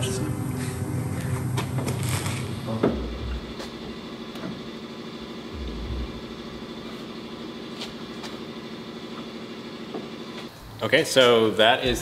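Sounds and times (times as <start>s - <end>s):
pulsing machine hum: 2.6s - 10.8s
low thumps: 5.5s - 7.4s.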